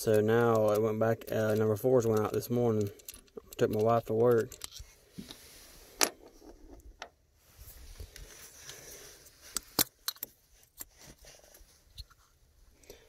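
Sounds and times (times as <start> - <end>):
clicks and metallic clinks of tools: 0.0 - 4.9.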